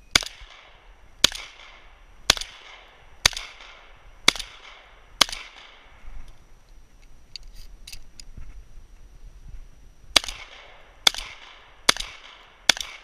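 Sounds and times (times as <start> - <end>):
gunshot echo: 0.1 - 5.9, 10.2 - 13.0
shotgun shots: 0.1 - 5.9, 10.1 - 13.0.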